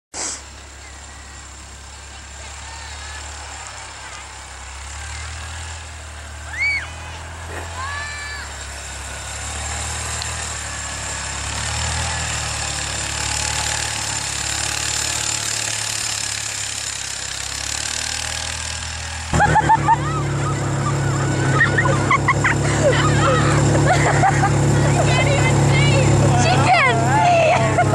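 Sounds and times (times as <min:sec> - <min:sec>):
hiss of snow and wind: 0:00.1 - 0:02.5
utility vehicle engine running: 0:00.2 - 0:27.9.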